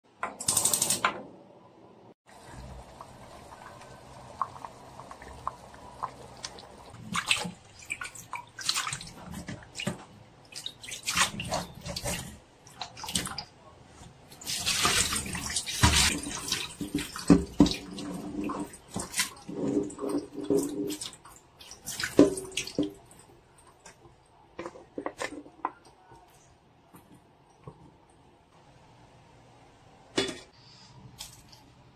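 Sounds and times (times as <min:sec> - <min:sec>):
water splashing and dripping: 0:02.3 - 0:13.6, 0:14.3 - 0:26.0.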